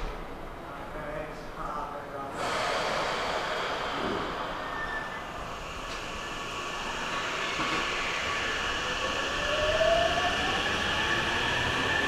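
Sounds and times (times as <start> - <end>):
electric train rail noise: 2.3 - 12.0
train motor whine rising: 2.8 - 12.0.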